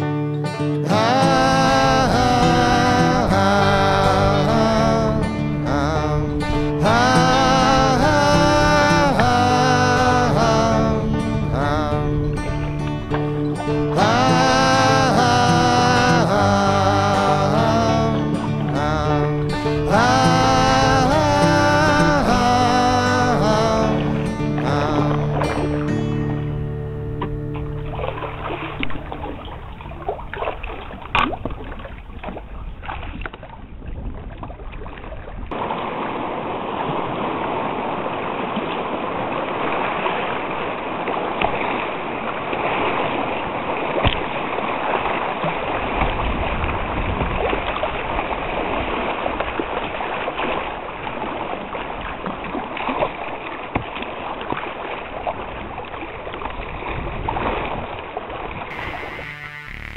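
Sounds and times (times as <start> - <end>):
river water rushing: 0.0 - 32.7, 35.5 - 46.6
sharp water splashes: 0.0 - 59.9.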